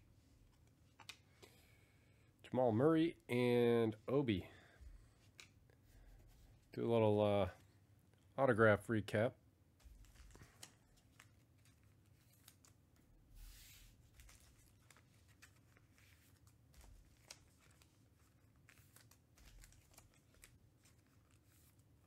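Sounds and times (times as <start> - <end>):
cards rustling: 0.4 - 1.4, 9.8 - 22.0.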